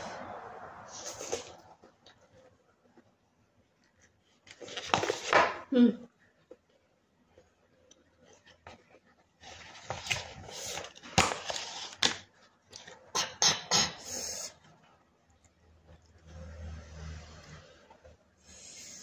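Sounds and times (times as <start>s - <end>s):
paper cup rustling and crinkling: 3.9s - 5.6s, 7.4s - 13.0s.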